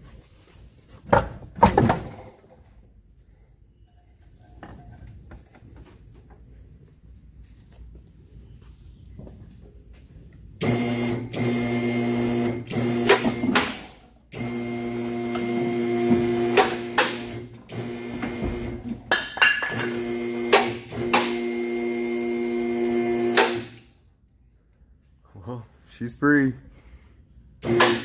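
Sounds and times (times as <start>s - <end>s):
hydraulic pump motor humming: 10.6s - 19.0s, 19.8s - 23.8s, 27.6s - 28.0s.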